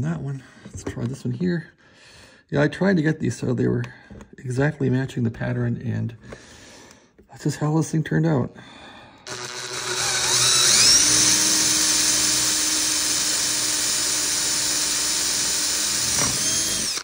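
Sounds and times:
electric drill boring metal: 9.3s - 17.0s.

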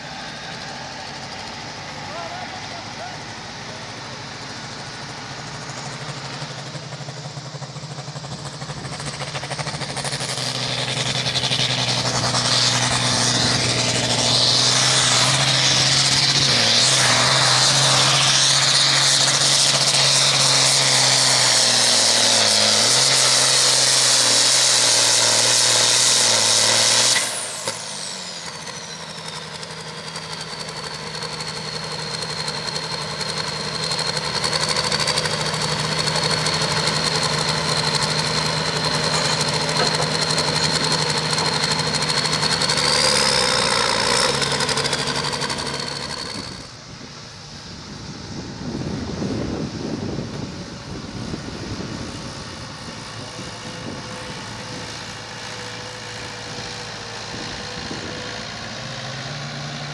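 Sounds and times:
tractor diesel engine at full throttle: 0.0s - 59.9s
tractor engine idling: 0.0s - 59.9s
turbo whine and whistle: 8.3s - 46.8s.

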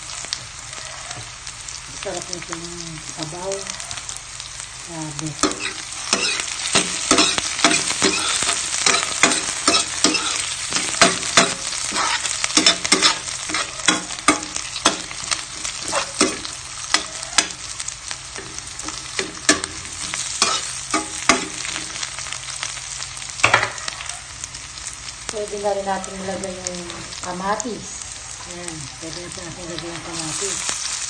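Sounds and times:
onions sizzling in hot oil: 0.0s - 31.0s
spatula scraping a pan: 5.4s - 17.8s, 18.4s - 22.3s.

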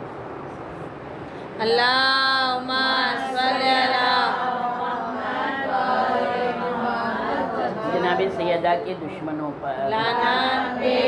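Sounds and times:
woman chanting: 1.6s - 8.4s, 9.8s - 11.0s.

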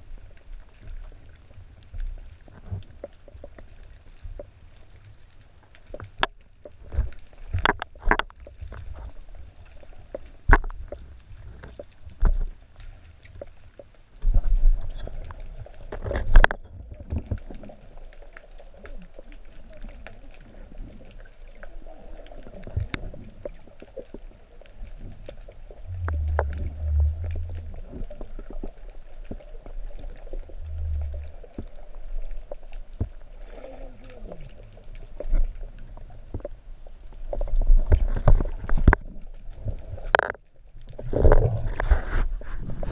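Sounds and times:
low underwater rumbles: 0.0s - 42.9s
underwater clicks and knocks: 5.7s - 42.9s.

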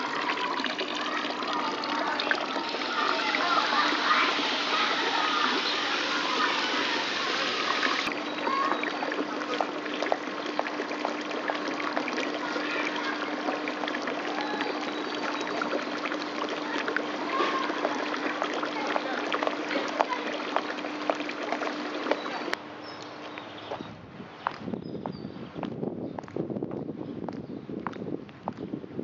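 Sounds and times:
fountain water splashing: 0.0s - 22.6s.

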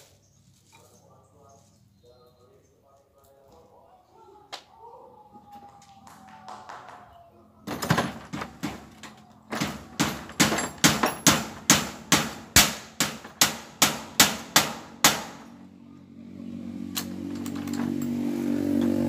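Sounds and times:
low motor hum: 15.6s - 19.0s.

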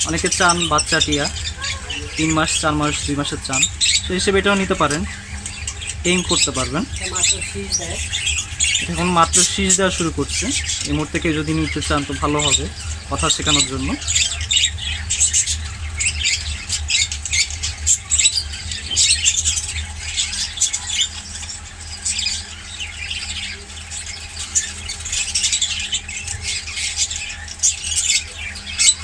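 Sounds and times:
low steady hum: 0.0s - 29.0s
parrots squawking and chirping: 0.0s - 29.0s.

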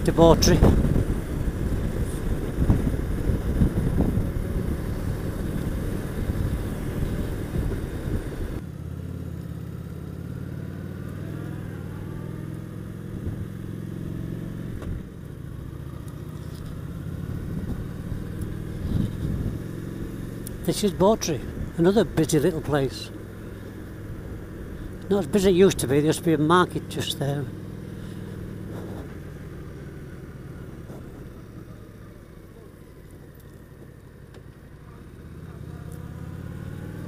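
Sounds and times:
motorcycle engine running: 0.0s - 37.0s
wind rush on microphone: 0.2s - 8.6s, 17.3s - 19.6s.

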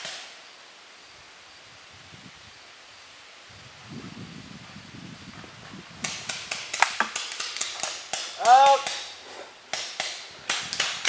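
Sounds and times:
paintball markers firing: 6.0s - 11.0s
person shouting: 8.4s - 9.0s.

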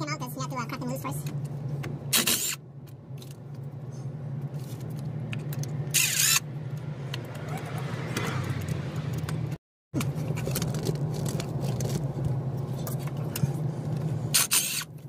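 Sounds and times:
steady low hum: 0.0s - 7.4s, 8.0s - 15.0s
impact wrench bursts: 2.1s - 2.6s, 5.9s - 6.4s, 14.3s - 14.9s.

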